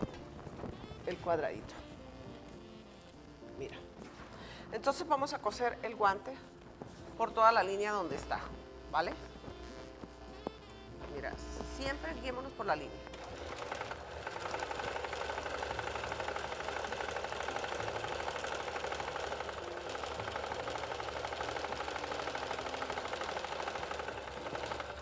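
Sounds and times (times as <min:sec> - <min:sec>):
sewing machine stitching: 0:11.2 - 0:25.0.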